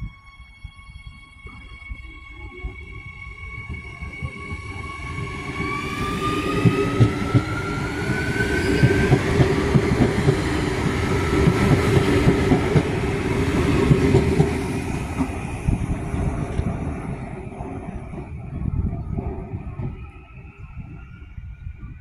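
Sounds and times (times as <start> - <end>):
electric train motor whine: 0.0 - 16.8
low train rumble: 0.0 - 22.0.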